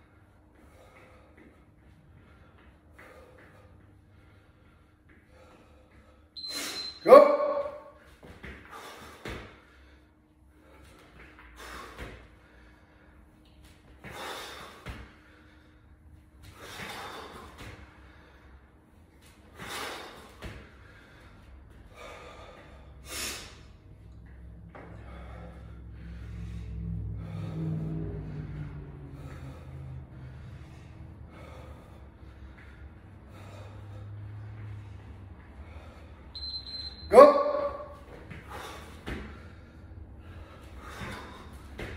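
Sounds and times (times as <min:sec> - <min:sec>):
man breathing hard: 0:00.0 - 0:07.0, 0:07.6 - 0:36.4, 0:37.9 - 0:41.9.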